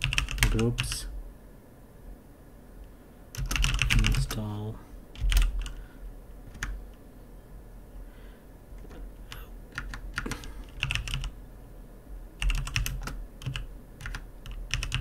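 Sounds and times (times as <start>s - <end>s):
typing on computer keyboard: 0.0s - 1.0s, 3.3s - 4.4s, 5.2s - 5.8s, 6.5s - 6.8s, 8.8s - 11.4s, 12.4s - 15.0s.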